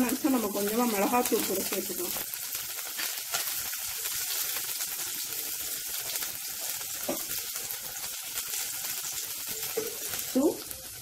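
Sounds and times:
garlic sizzling in hot oil: 0:00.0 - 0:11.0.

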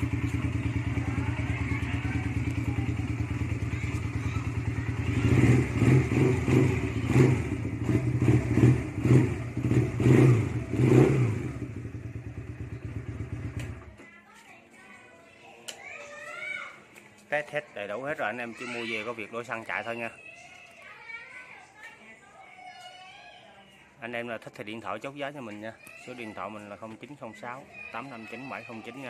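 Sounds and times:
motorcycle engine revving: 0:00.0 - 0:13.9
motorcycle engine idling: 0:00.0 - 0:14.0.

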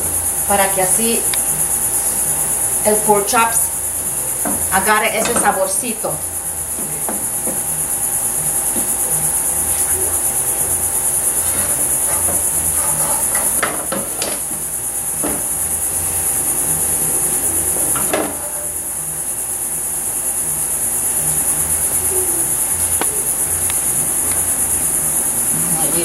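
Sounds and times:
low pulsing hum: 0:00.0 - 0:13.6
high-pitched hiss: 0:00.0 - 0:26.0.

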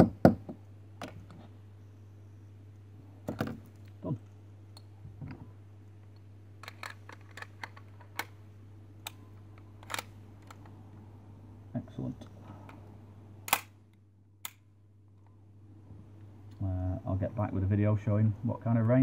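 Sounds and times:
low electrical hum: 0:00.0 - 0:19.0
metal gun parts clicking: 0:06.1 - 0:08.4, 0:09.0 - 0:10.8, 0:13.5 - 0:13.8.

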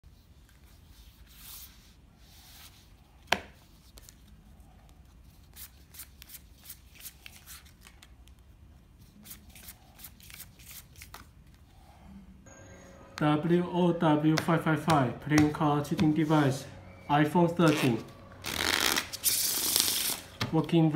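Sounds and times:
playing cards being dealt: 0:14.2 - 0:16.6, 0:17.6 - 0:20.6.

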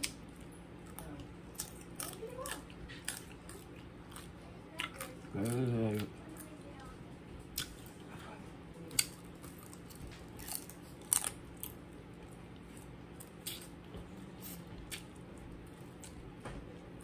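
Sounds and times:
chewing: 0:00.0 - 0:16.4
crab shell crunching: 0:08.9 - 0:11.8.

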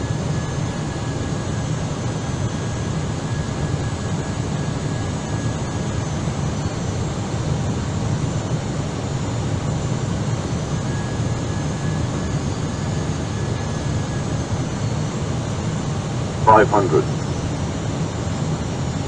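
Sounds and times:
aircraft engine low hum: 0:00.0 - 0:19.0
aircraft cockpit airflow rush: 0:16.5 - 0:17.1.

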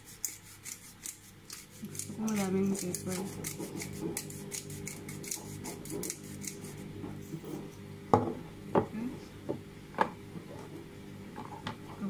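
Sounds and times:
grinder knocking on counter: 0:08.1 - 0:08.9.

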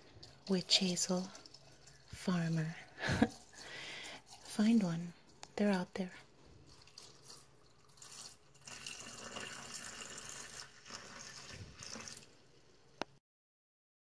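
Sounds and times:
liquid pouring into a jar: 0:00.0 - 0:04.9, 0:06.6 - 0:12.7.

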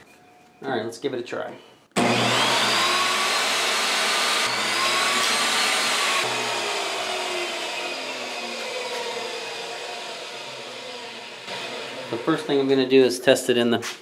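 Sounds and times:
table saw motor whine: 0:02.0 - 0:13.0.

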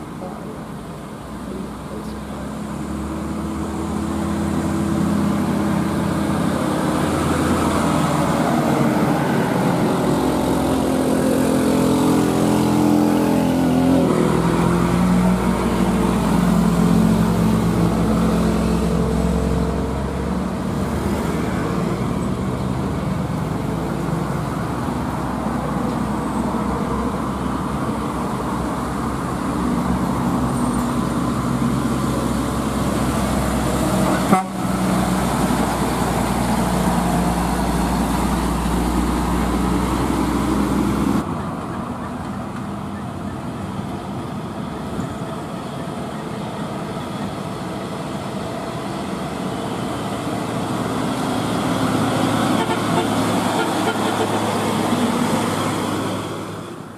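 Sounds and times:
diesel truck passing: 0:00.0 - 0:56.9.

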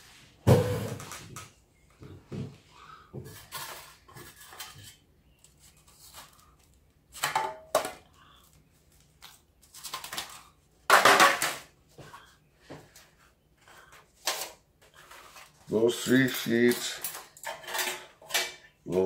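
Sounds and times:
metal sheets and foil rattling: 0:13.6 - 0:19.0.

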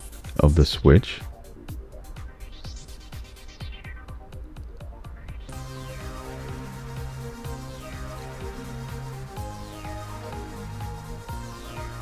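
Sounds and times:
held synth notes: 0:04.6 - 0:12.0
bass line: 0:05.5 - 0:12.0
falling high synth sweep: 0:05.5 - 0:12.0.

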